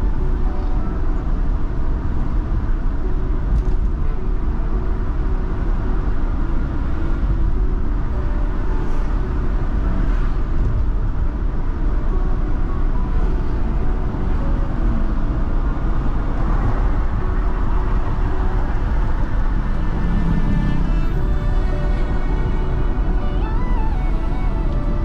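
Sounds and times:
car road and engine rumble: 0.0 - 25.0.

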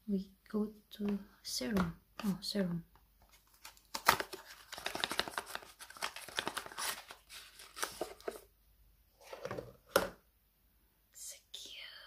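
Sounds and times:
packaging rustling and scraping: 3.2 - 8.5.

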